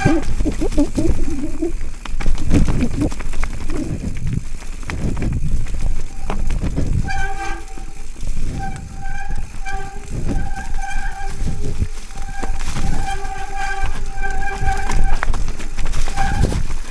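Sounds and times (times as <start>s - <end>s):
disc brake squealing: 0.0s - 1.8s, 5.9s - 16.9s
mountain bike rattling: 0.0s - 16.9s
wind rumble: 0.0s - 16.9s.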